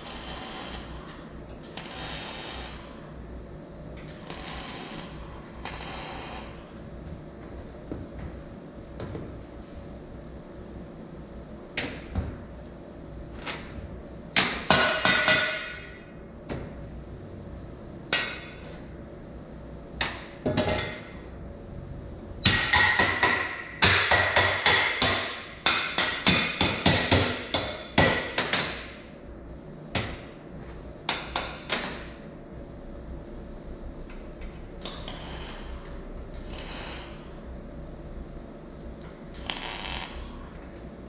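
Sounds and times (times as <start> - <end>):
hammer striking steel tubing: 22.4 - 28.8.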